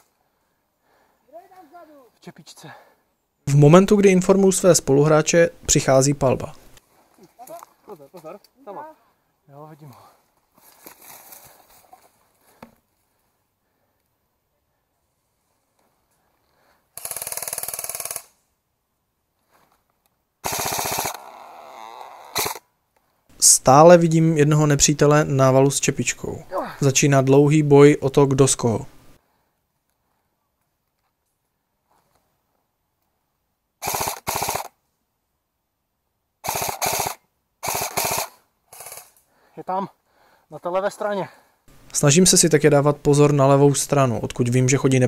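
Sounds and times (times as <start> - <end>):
airsoft rifle full-auto bursts: 17.0 - 18.3, 20.4 - 21.3, 22.3 - 22.6, 33.8 - 34.8, 36.4 - 39.2.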